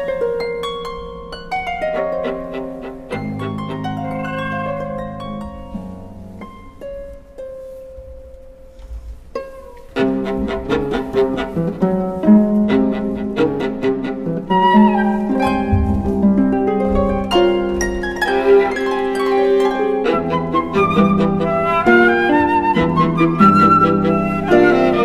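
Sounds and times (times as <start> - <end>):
bowed viola: 1.8 - 6.4, 9.4 - 25.0
plucked harp notes: 14.7 - 20.0.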